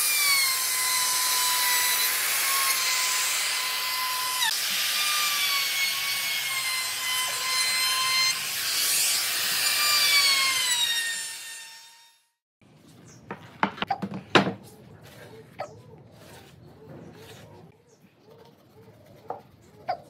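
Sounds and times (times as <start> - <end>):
router whining cutting wood: 0.0 - 12.1.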